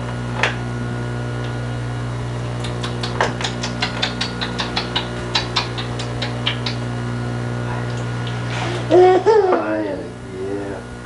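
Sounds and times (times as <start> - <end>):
low electrical hum: 0.0 - 11.0
light sharp clicking taps: 2.6 - 6.8.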